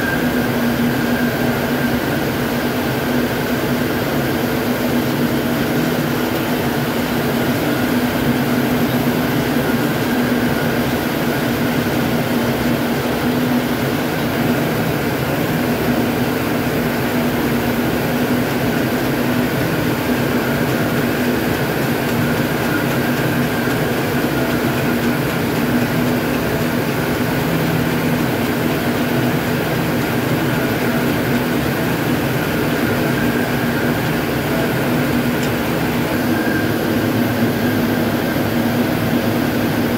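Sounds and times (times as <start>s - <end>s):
spinning machines whirring: 13.8s - 39.9s
thin high whine: 30.2s - 39.9s.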